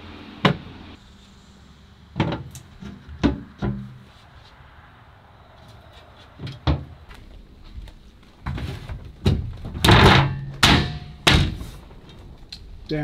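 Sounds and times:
metal hatch lid knocks and thunks: 8.4s - 11.7s.

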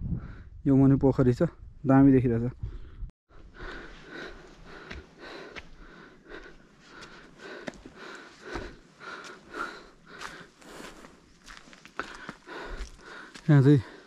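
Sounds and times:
quick breathing: 2.7s - 14.0s
footsteps on stone steps: 3.6s - 14.0s.

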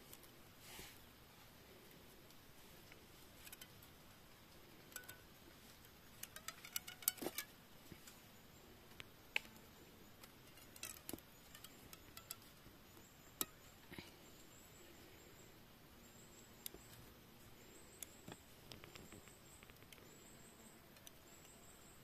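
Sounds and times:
plant strips clicking and creaking: 1.8s - 8.2s, 8.9s - 14.1s, 18.0s - 20.2s.

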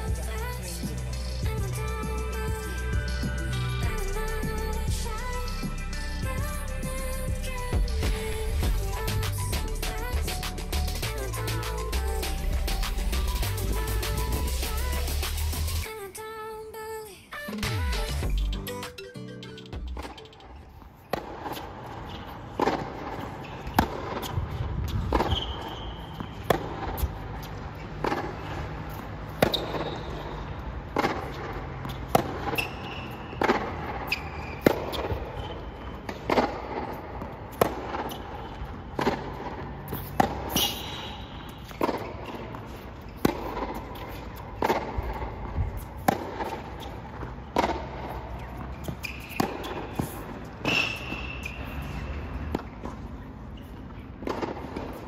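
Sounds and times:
shoe squeaks on court: 19.9s - 39.2s, 39.8s - 55.0s
racket striking tennis ball: 21.0s - 27.2s, 28.0s - 53.2s, 54.2s - 55.0s
tennis ball bouncing: 21.0s - 55.0s.

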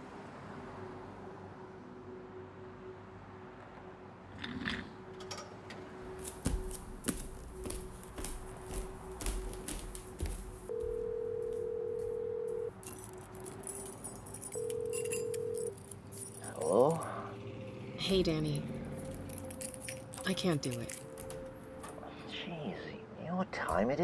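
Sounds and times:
footsteps and small knocks: 5.3s - 14.4s, 19.1s - 22.0s
telephone ringback tone: 10.7s - 12.7s, 14.6s - 15.8s.

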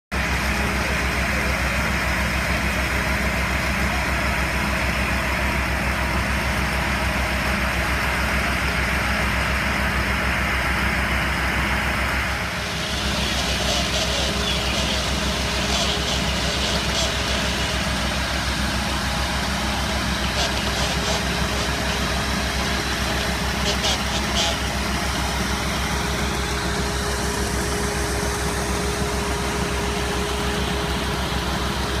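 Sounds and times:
fire engine idling: 0.1s - 32.0s.

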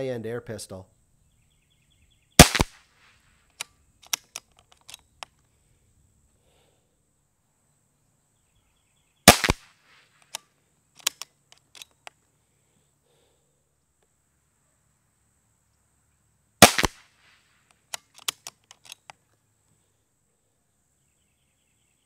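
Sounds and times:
pistol action clicks: 2.4s - 2.8s, 3.5s - 5.4s, 9.3s - 12.2s, 16.6s - 17.0s, 17.7s - 19.2s
air pistol shot crack: 2.4s - 3.1s, 9.3s - 9.8s, 16.6s - 17.3s.

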